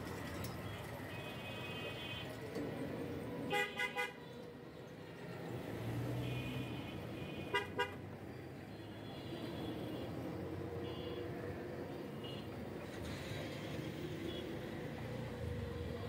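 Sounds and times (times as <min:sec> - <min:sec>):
hum of passing engines: 0:04.4 - 0:07.2, 0:09.5 - 0:16.0
vehicle horns tooting: 0:06.2 - 0:08.0, 0:10.8 - 0:11.2.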